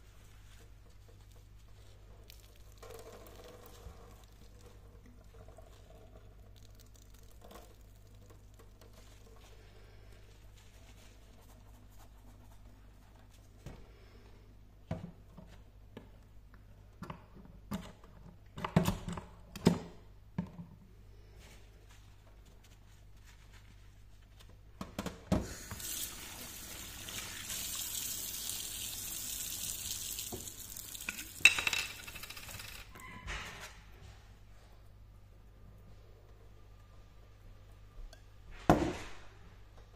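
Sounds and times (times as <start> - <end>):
tap water running into sink: 25.7 - 31.6.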